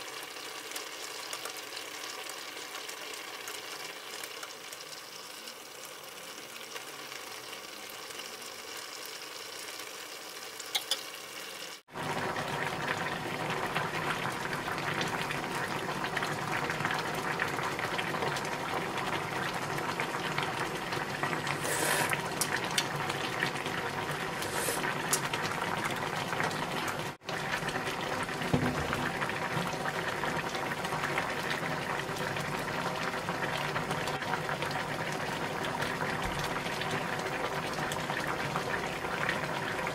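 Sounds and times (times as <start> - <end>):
broth bubbling in a pot: 0.0 - 39.9
knocks on a pot: 28.5 - 29.0.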